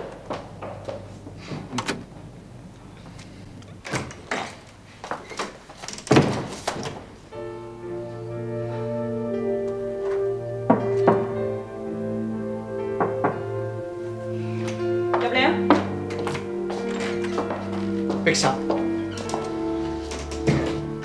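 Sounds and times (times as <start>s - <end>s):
background music with held chords: 7.2s - 21.0s.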